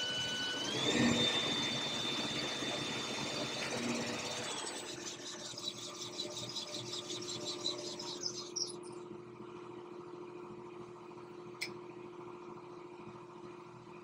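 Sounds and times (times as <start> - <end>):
high-pitched whine: 0.0 - 9.1
machine hum: 0.0 - 14.0.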